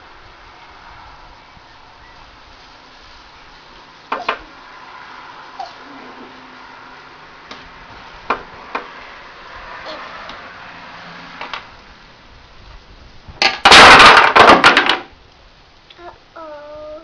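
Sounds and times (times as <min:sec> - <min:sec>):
clatter of falling blocks: 0:13.4 - 0:15.1.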